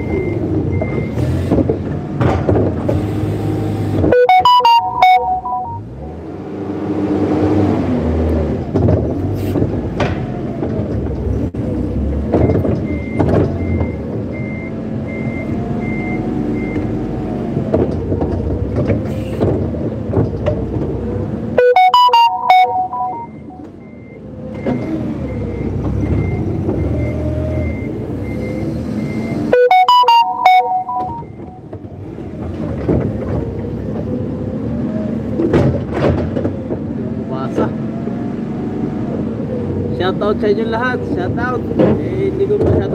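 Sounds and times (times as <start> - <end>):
reversing alarm beeping: 4.1 - 6.1, 21.6 - 24.2, 25.3 - 31.7
musical tones: 4.2 - 6.2, 21.6 - 23.8, 29.5 - 31.7.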